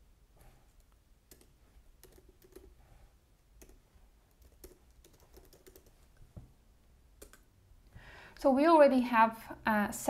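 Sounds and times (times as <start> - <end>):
faint keyboard typing: 0.7 - 2.8, 3.4 - 6.5, 7.2 - 7.5.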